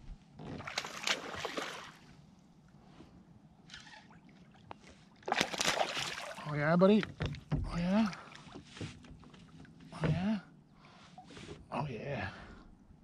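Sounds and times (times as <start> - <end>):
fish splashing and thrashing in water: 0.5 - 2.1, 5.2 - 6.4.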